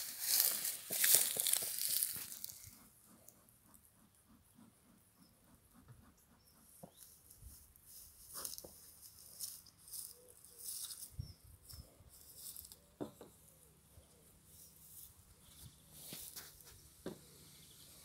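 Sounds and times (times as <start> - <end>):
rustling through dry grass: 0.0 - 2.9, 7.0 - 12.9, 14.5 - 16.8.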